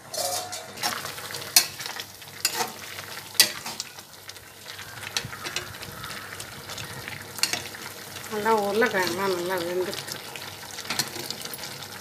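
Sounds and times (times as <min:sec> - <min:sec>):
bubbling sizzle: 0:00.0 - 0:12.0
spatula stirring thick gravy: 0:00.8 - 0:08.3.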